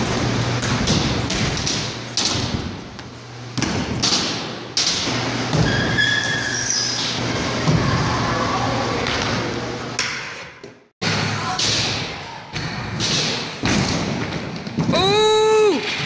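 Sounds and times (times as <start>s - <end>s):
brief high squeak: 5.6s - 7.1s.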